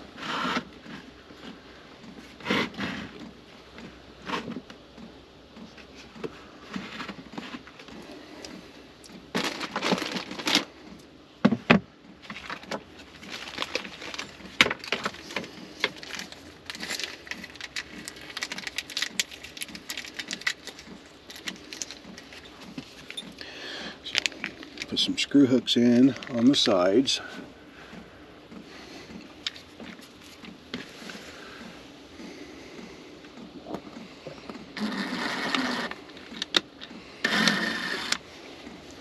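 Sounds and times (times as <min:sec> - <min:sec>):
small objects rummaged through: 0:09.3 - 0:10.8, 0:12.2 - 0:25.4.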